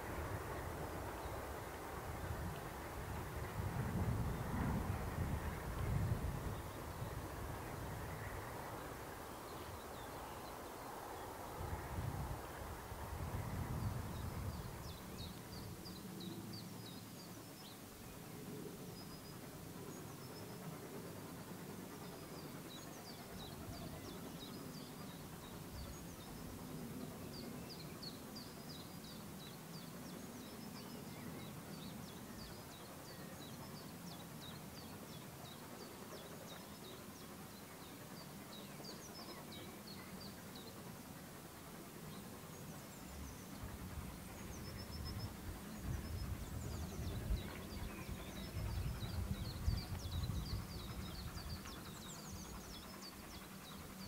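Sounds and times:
distant steam train rumble: 0.0 - 54.0
birds chirping: 41.6 - 54.0.

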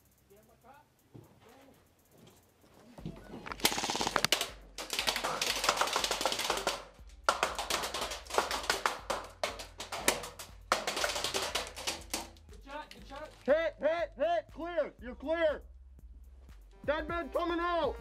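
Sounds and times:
airsoft guns firing bursts: 3.5 - 12.4
background music with bass: 6.7 - 18.0.

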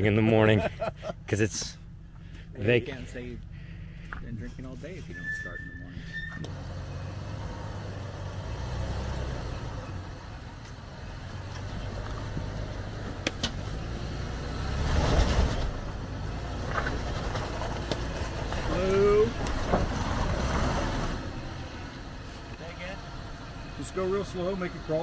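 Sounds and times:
engine running at low revs: 6.4 - 25.0.

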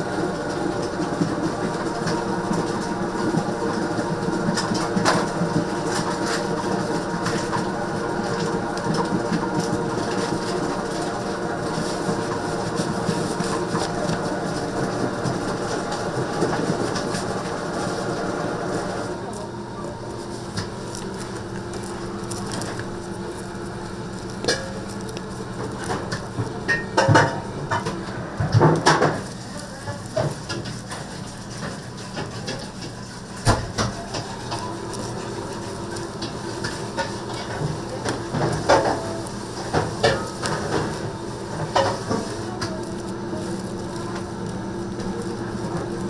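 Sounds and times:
machine hum: 0.0 - 46.0
utensils and pans clattering: 24.4 - 46.0.

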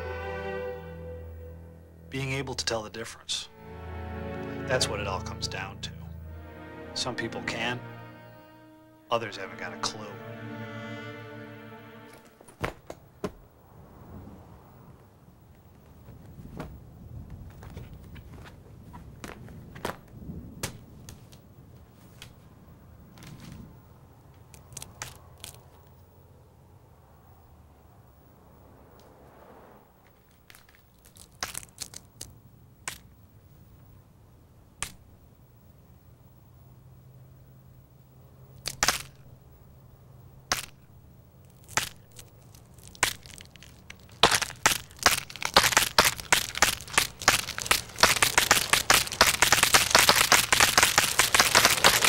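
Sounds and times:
faint low hum: 0.0 - 52.0
cracking and crunching snaps: 24.3 - 25.9, 30.1 - 33.2, 34.8 - 35.1, 38.6 - 39.3, 40.4 - 52.0
small hard objects clicking: 30.3 - 33.1, 41.4 - 52.0.

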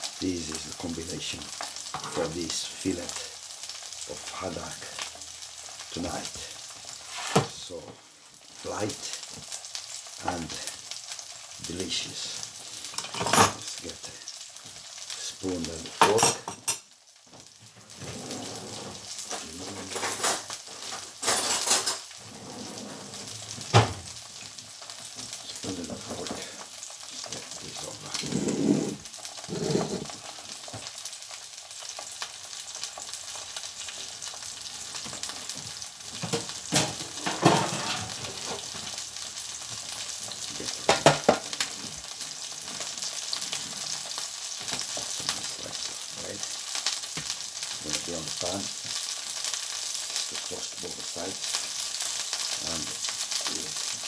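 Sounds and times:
fish sizzling in a pan: 0.0 - 54.0
kitchen utensils clattering: 12.9 - 13.6, 18.0 - 24.0, 36.2 - 38.6.

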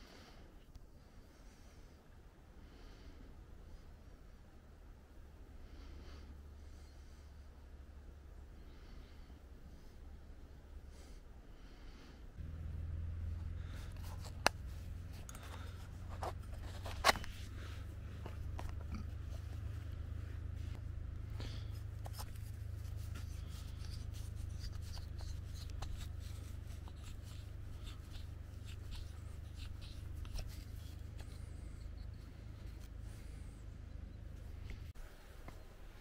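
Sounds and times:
steady low rumble: 1.0 - 36.0.

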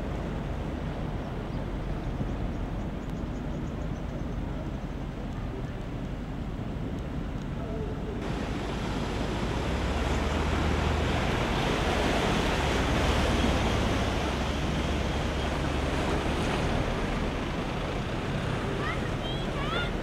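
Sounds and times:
wind buffeting microphone: 0.0 - 20.0
water rushing and splashing: 8.1 - 20.0.

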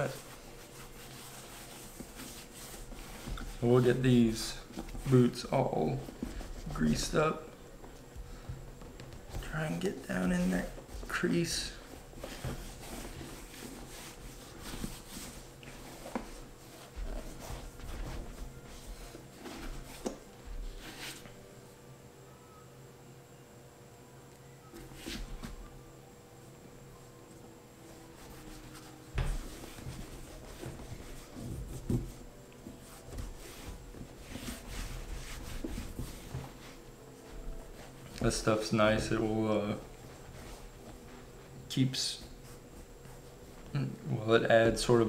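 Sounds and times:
hand rubbing leather boot: 0.0 - 7.1.

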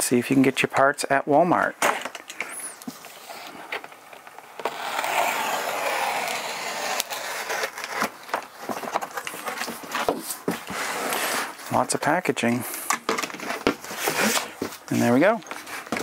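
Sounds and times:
box cutter slicing cardboard: 4.6 - 8.2, 13.4 - 14.6
cardboard flaps clicking and rustling: 7.7 - 11.2.

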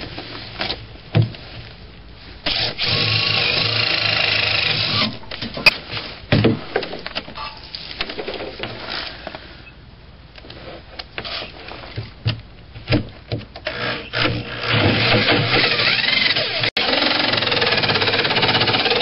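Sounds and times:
drill cutting through wood: 2.5 - 5.1, 13.7 - 19.0.

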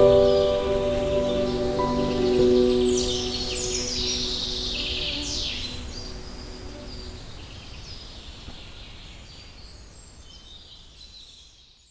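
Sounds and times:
background music: 0.0 - 6.2
birds chirping: 0.0 - 11.6
steady outdoor hiss: 0.0 - 11.9.

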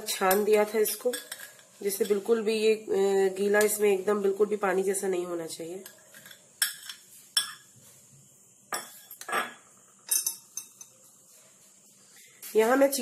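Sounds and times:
spoon clinking against bowl: 5.8 - 7.6, 8.7 - 11.0.

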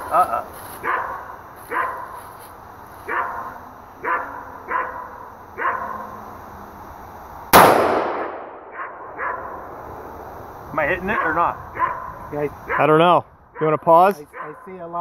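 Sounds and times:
dog barking: 0.8 - 2.2, 3.0 - 6.1, 8.7 - 9.6, 11.1 - 12.9, 14.3 - 14.8
rifle shot with echo: 7.5 - 10.1.

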